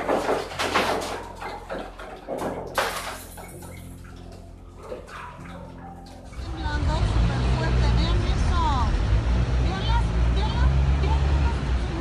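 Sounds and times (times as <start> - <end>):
furniture rattling and knocking: 0.0 - 4.1.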